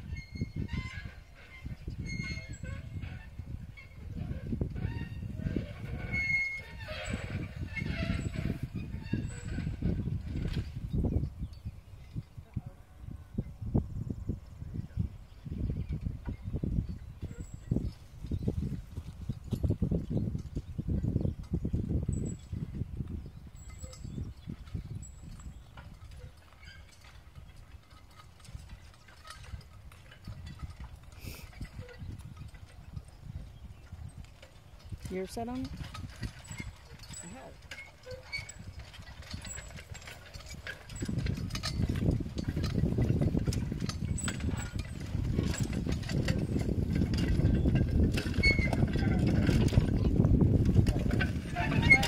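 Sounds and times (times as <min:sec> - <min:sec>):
plow rattling and clanking: 0:00.0 - 0:10.9, 0:23.6 - 0:52.0
wind rumble on microphone: 0:00.0 - 0:52.0
harness and chains clinking: 0:00.1 - 0:12.6, 0:15.9 - 0:52.0.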